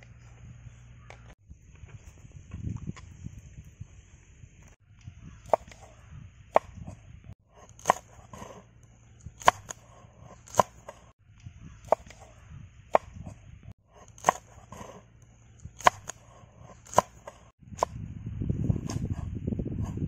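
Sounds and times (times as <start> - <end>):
knife chopping on wooden board: 5.4 - 5.9, 7.6 - 8.6, 9.4 - 11.1, 11.9 - 12.3, 14.0 - 15.0, 15.8 - 17.9.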